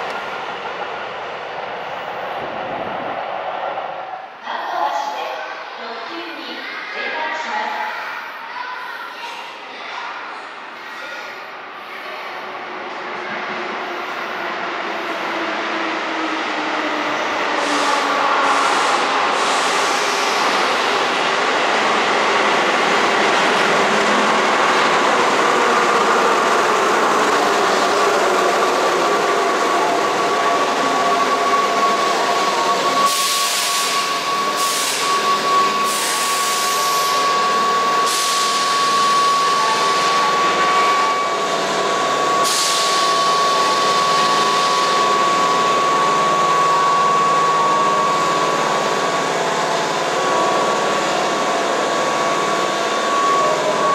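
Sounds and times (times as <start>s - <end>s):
train high whine: 11.2s - 53.9s.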